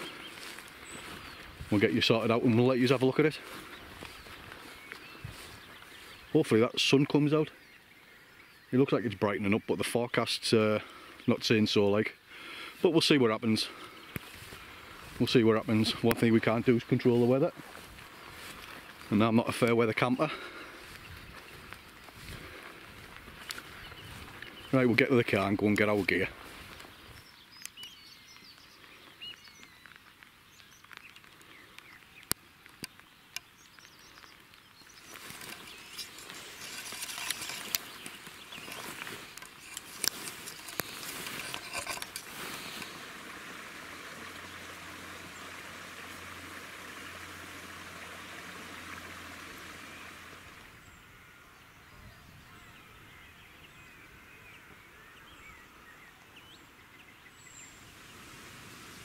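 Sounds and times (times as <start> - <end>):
faint bird calls: 0.0 - 2.2
grass rustling against microphone: 0.0 - 59.0.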